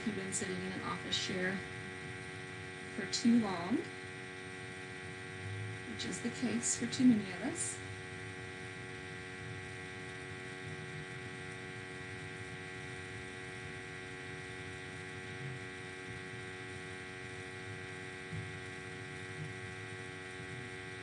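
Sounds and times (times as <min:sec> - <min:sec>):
faint low rumble: 0:00.0 - 0:13.4
electrical hum: 0:00.0 - 0:21.0.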